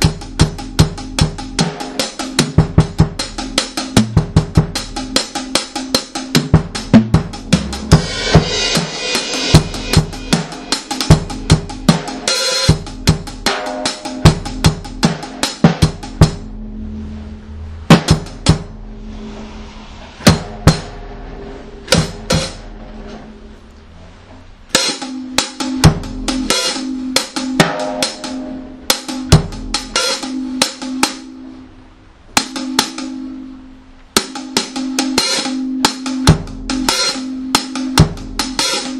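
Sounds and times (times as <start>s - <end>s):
reggae dub drum beat: 0.0s - 23.5s, 24.6s - 38.9s
held low bass note: 15.8s - 24.7s.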